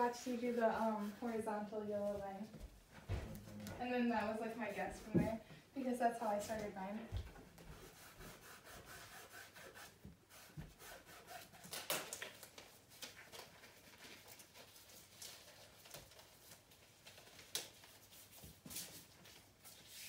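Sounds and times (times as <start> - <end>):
paintbrushes scratching on canvas: 0.0 - 2.5, 3.4 - 5.4, 7.6 - 11.8, 17.7 - 20.0.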